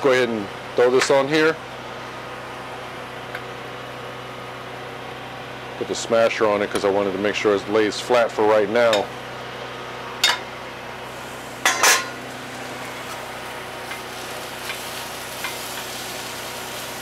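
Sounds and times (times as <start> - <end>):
cooking utensils clanking: 10.2 - 10.5, 11.6 - 12.2
tortilla sizzling on griddle: 10.8 - 17.0.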